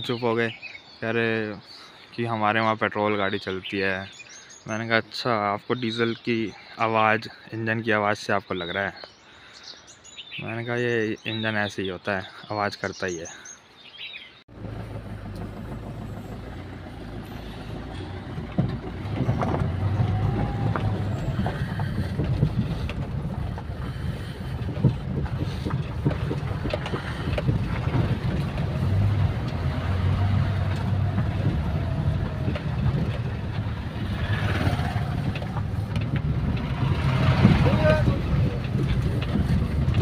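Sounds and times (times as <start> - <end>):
car engine and tyre rumble: 14.4 - 40.0
road knocks: 14.5 - 40.0.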